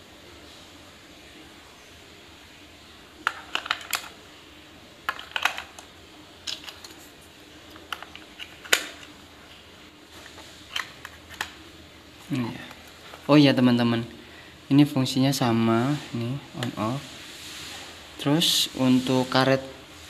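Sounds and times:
plastic clicks and rattles: 0:03.2 - 0:04.2, 0:05.1 - 0:07.0, 0:07.7 - 0:09.1, 0:10.7 - 0:11.6.

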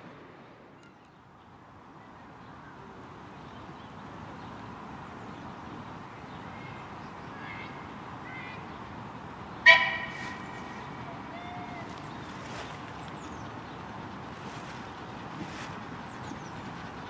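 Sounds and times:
steady outdoor hiss: 0:00.0 - 0:17.0
steam locomotive whistle toot: 0:09.6 - 0:11.8.

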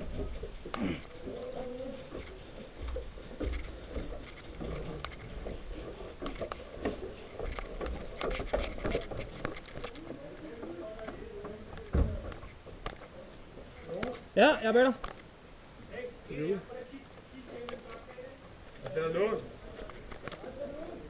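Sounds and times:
footsteps and scuffing: 0:00.0 - 0:14.2
sharp clicks and knocks: 0:00.0 - 0:14.4
faint voices: 0:00.0 - 0:15.0, 0:15.8 - 0:21.0.

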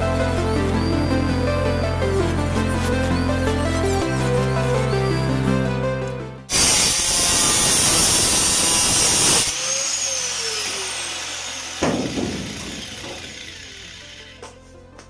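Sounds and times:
angle grinder cutting metal: 0:06.5 - 0:14.6.

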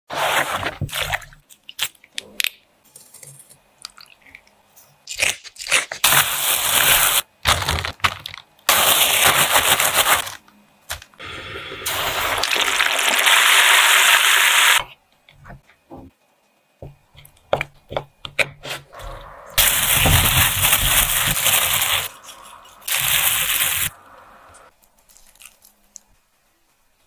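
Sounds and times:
packaging crackling and clicking: 0:06.8 - 0:11.2
prawn sizzling in hot oil: 0:11.4 - 0:14.8.

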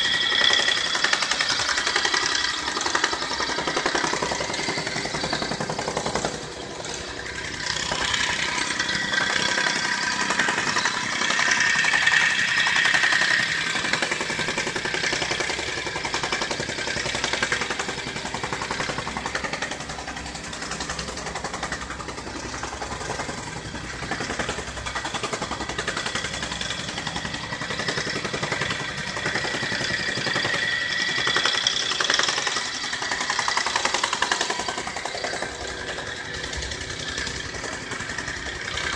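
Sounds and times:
construction machinery engine clattering: 0:00.0 - 0:38.9
wavering whine: 0:25.6 - 0:38.9.

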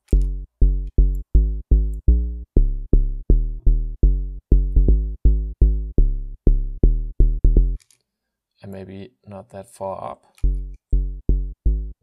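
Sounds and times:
synth bass short low notes: 0:00.0 - 0:07.8, 0:10.5 - 0:12.0.

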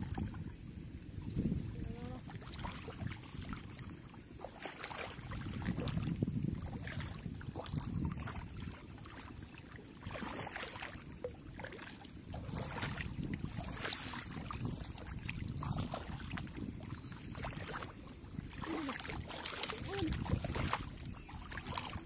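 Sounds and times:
hands splashing in muddy water: 0:04.4 - 0:06.1, 0:11.6 - 0:22.0.

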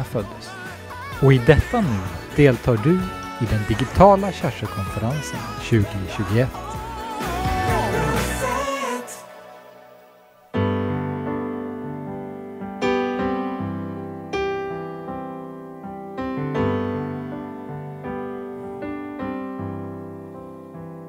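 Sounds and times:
solo piano slow gentle chords: 0:10.5 - 0:21.0.

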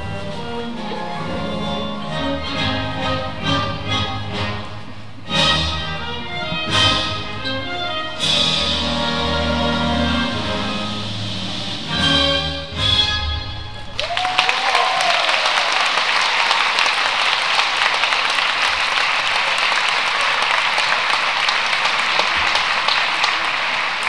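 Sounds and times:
audience applauding: 0:13.8 - 0:24.0
person whooping: 0:14.0 - 0:15.9.

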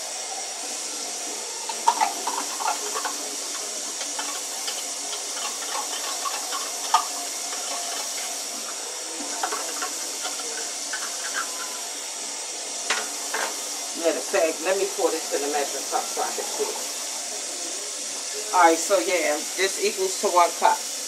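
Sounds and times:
tap water running into can: 0:01.6 - 0:12.0
can clinking and knocking: 0:01.7 - 0:08.2.

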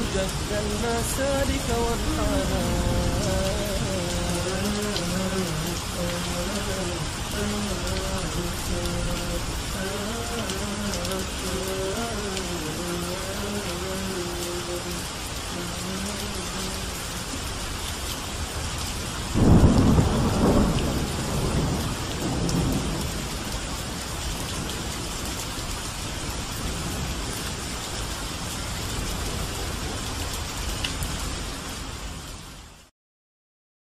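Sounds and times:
thunder rumbling: 0:00.0 - 0:10.4, 0:19.3 - 0:25.3
steady rain falling: 0:00.0 - 0:32.9.

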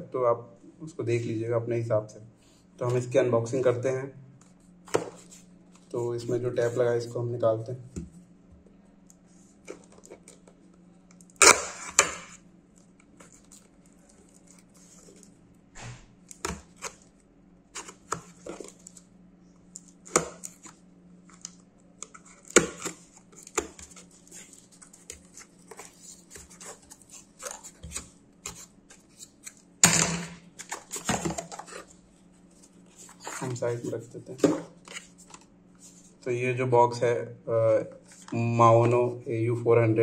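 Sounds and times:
tape tearing: 0:11.2 - 0:12.4
knife cutting packing tape: 0:11.3 - 0:12.4
cardboard rustling: 0:22.1 - 0:29.5, 0:30.5 - 0:36.1.

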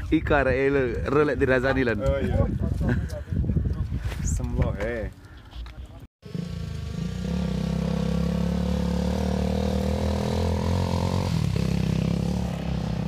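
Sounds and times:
motorcycle engine running: 0:06.2 - 0:13.0.

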